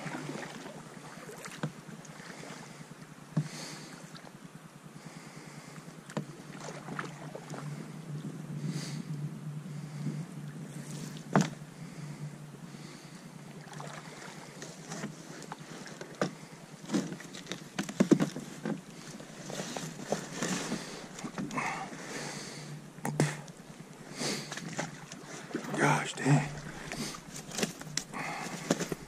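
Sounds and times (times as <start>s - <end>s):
paddle splashing in water: 0.0s - 2.8s, 6.1s - 7.7s, 13.6s - 29.0s
paddle knocking against boat: 11.2s - 11.6s, 16.1s - 18.8s.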